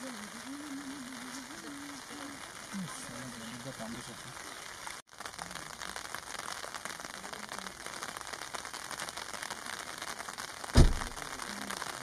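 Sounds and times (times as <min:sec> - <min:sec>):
rain pattering on leaves: 0:00.0 - 0:12.0
loud thump: 0:10.8 - 0:11.2.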